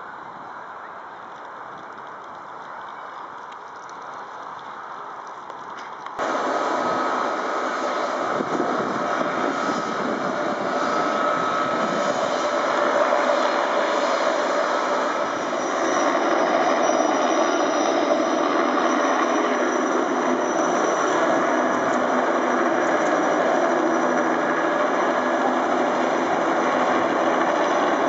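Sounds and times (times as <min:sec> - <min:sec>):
helicopter rotor noise: 0:06.2 - 0:28.0
helicopter turbine whine: 0:06.2 - 0:28.0.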